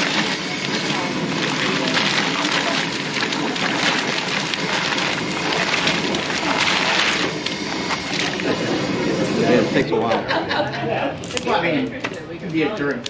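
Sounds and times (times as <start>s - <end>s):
crawfish shells rattling and splashing: 0.0s - 8.8s.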